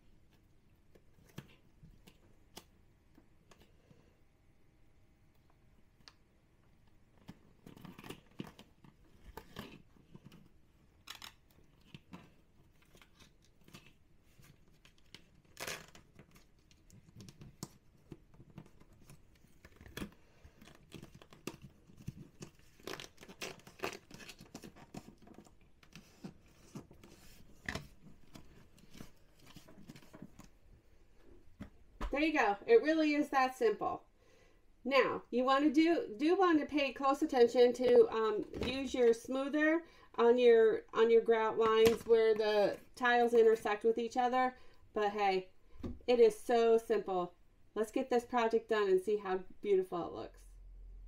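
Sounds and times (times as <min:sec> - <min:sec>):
vinyl sheet crinkling and peeling: 0:07.0 - 0:30.7.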